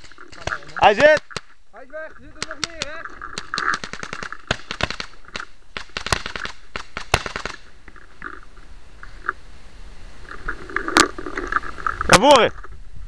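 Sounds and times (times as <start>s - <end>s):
paintball markers firing pops: 2.4s - 7.6s.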